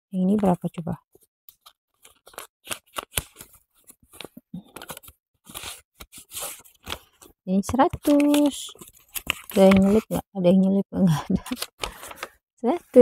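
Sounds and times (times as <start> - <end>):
paper envelope rustling: 1.1 - 10.2, 11.5 - 12.3.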